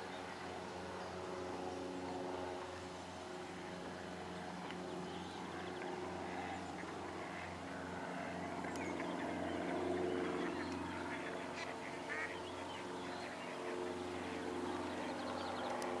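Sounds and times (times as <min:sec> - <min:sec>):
ducks calling: 0:05.6 - 0:15.2.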